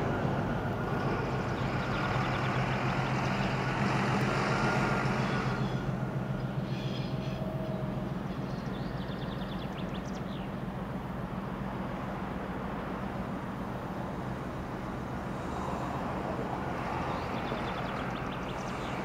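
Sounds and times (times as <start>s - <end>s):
diesel locomotive engine humming: 0.0s - 19.0s.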